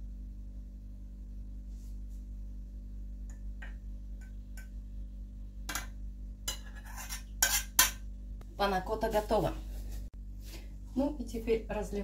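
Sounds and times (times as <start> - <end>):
low hum: 0.0 - 12.0
metal spoon tapping saucepan: 5.7 - 6.7.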